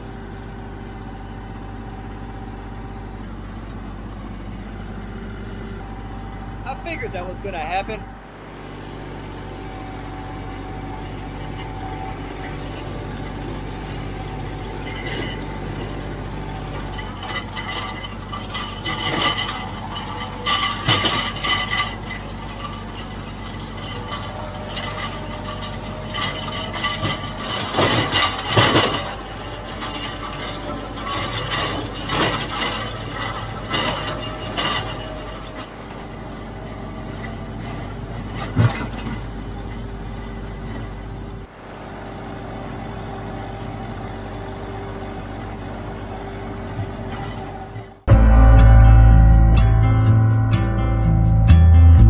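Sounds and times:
tractor diesel engine running: 0.0s - 52.0s
rattling and clinking: 9.6s - 41.4s.

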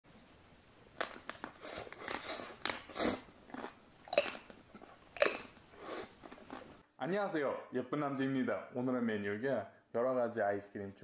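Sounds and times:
chocolate coating cracking: 0.9s - 6.8s
chewing and wet mouth sounds: 1.0s - 6.8s.

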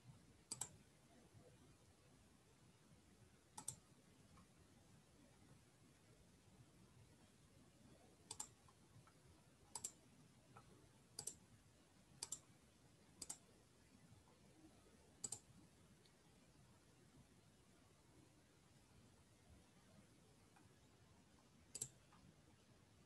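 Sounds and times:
computer mouse clicks: 0.5s - 0.8s, 3.6s - 3.8s, 8.3s - 8.8s, 9.7s - 11.4s, 12.2s - 12.5s, 13.2s - 13.5s, 15.2s - 15.5s, 21.7s - 22.3s.

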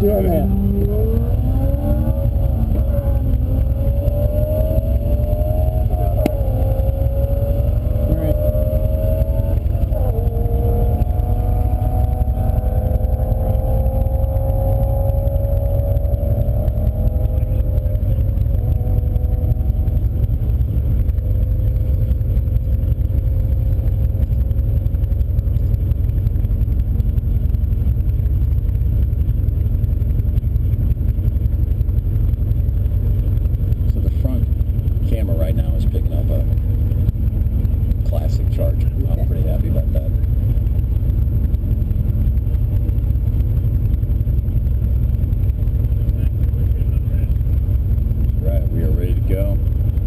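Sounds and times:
faint whine dropping in pitch: 0.0s - 32.0s
car engine and road rumble: 0.0s - 50.0s.

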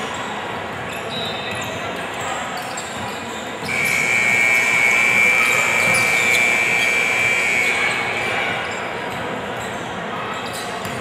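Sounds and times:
gym background noise: 0.0s - 11.0s.

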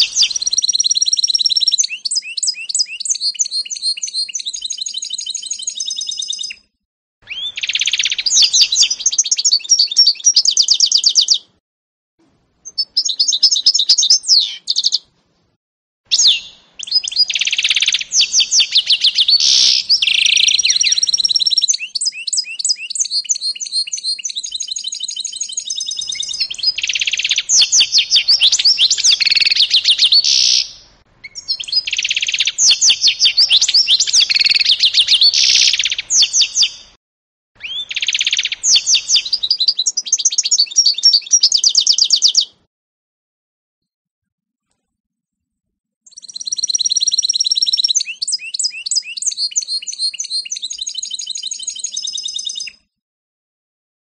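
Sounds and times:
finch singing twittering trills: 16.2s - 36.8s, 37.6s - 42.5s.

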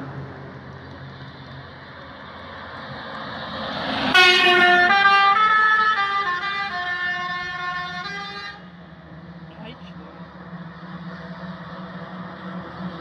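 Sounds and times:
bus road noise: 0.0s - 13.0s
musical horn playing a tune: 4.2s - 8.6s.

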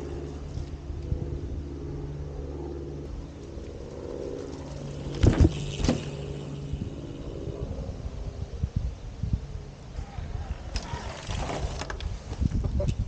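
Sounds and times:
low mechanical hum: 0.0s - 13.0s
bike wheels thudding: 3.7s - 7.4s.

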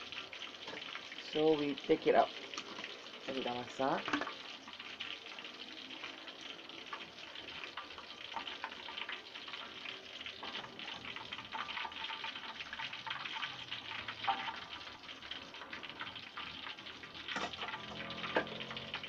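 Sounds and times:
oil sizzling in a wok: 0.0s - 19.0s.

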